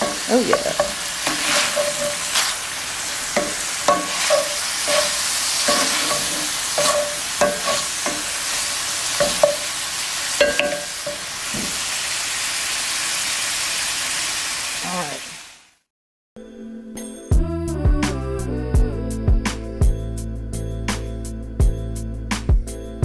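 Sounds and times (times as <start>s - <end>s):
chopper tool knocking on pan: 0.0s - 2.2s, 3.4s - 8.3s, 9.2s - 9.7s, 10.4s - 11.8s
meat sizzling in a skillet: 0.0s - 15.8s.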